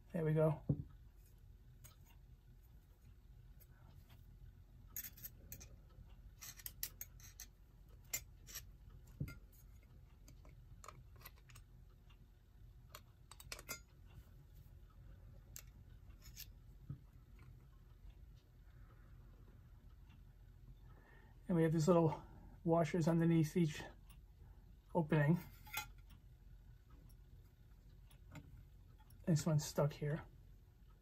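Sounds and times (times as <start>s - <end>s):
small metal parts clicking: 4.9s - 5.8s, 6.4s - 8.7s, 10.2s - 11.7s, 12.9s - 13.9s.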